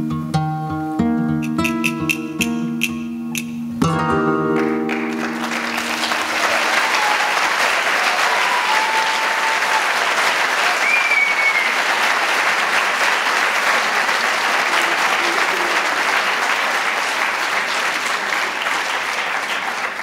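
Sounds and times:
flamenco guitar chord: 0:00.0 - 0:06.1
audience applauding: 0:04.5 - 0:20.0.

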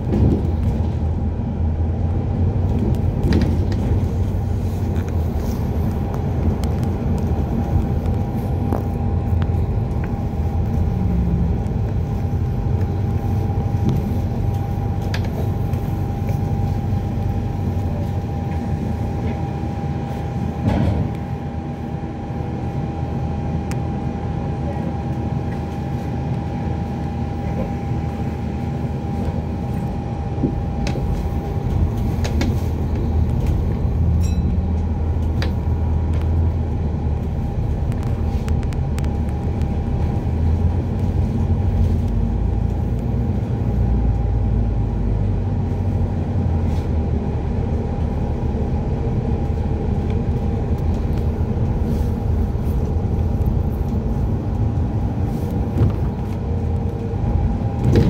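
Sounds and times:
bus drivetrain and road rumble: 0:00.0 - 0:58.0
constant high tone: 0:34.2 - 0:34.7.

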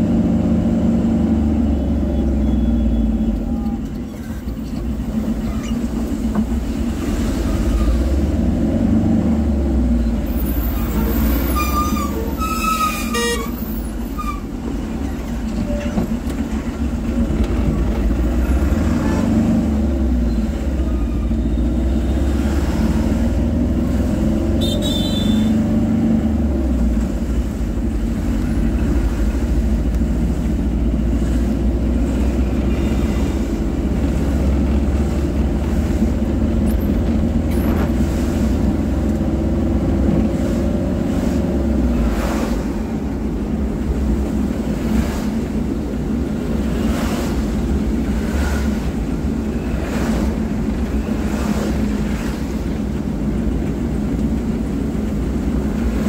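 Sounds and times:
tyres on wet road: 0:00.0 - 0:56.0
vehicle rumble from inside: 0:00.0 - 0:56.0
vehicle horn honking: 0:10.9 - 0:13.7, 0:24.6 - 0:25.6.

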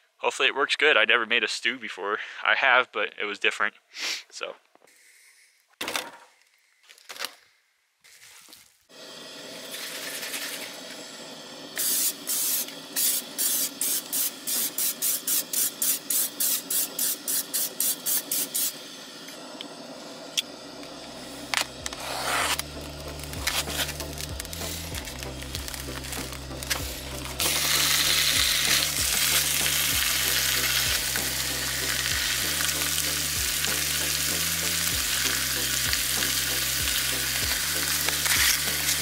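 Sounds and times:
background music with bass: 0:21.0 - 0:39.0
sharp scraping strokes: 0:21.5 - 0:31.2
meat sizzling in a pan: 0:21.7 - 0:39.0.

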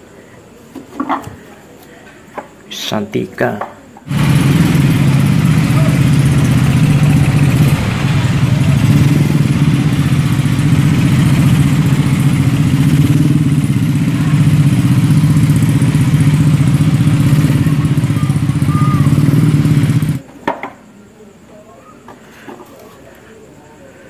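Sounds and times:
traffic engines humming: 0:04.1 - 0:20.2.

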